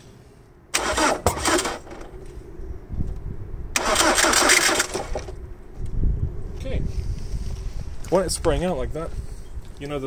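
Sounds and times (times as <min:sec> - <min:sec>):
diesel engine cranking on starter: 0:00.7 - 0:02.2, 0:03.7 - 0:05.4.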